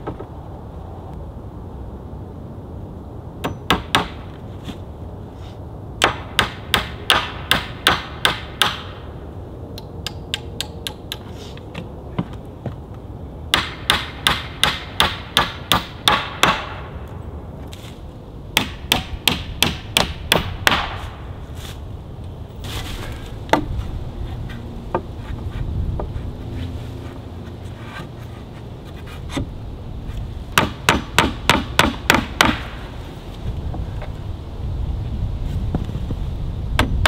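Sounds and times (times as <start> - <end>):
hammer nailing wooden boards: 3.4 - 4.2, 6.0 - 8.9, 13.5 - 16.8, 18.6 - 21.0, 30.6 - 32.8.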